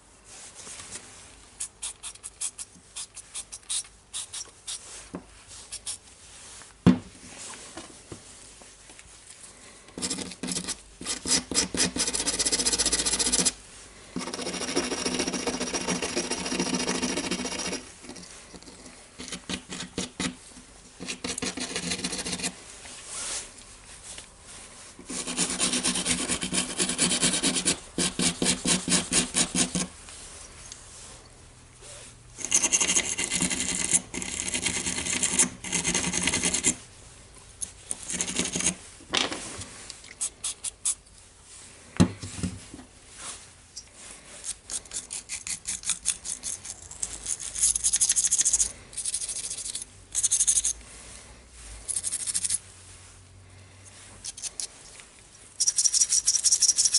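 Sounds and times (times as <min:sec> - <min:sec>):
sanding block scraping plastic: 0:10.0 - 0:13.6, 0:14.2 - 0:20.4, 0:25.0 - 0:29.9, 0:32.4 - 0:36.8.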